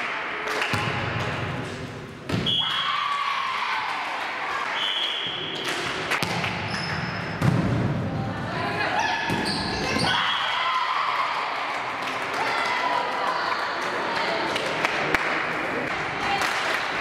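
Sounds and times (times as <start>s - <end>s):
echoing voices: 7.9s - 17.0s.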